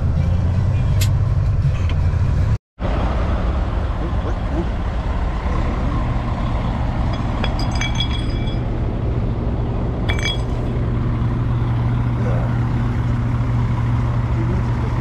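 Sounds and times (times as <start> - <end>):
diesel truck engine humming: 0.0 - 15.0
metallic clinking: 6.9 - 8.8, 10.1 - 10.8.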